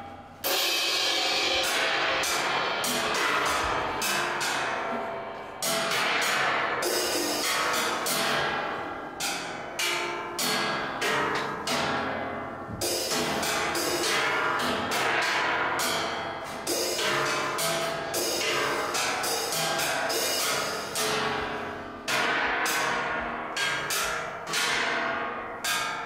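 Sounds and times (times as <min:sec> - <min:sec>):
ringing percussion strikes: 0:00.0 - 0:26.0.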